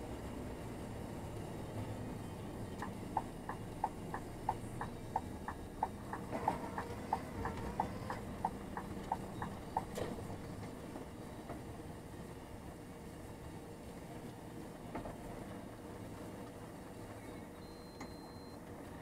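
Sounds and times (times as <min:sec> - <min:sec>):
truck engine rumble: 0:00.0 - 0:17.7
turn signal ticking: 0:02.7 - 0:10.1.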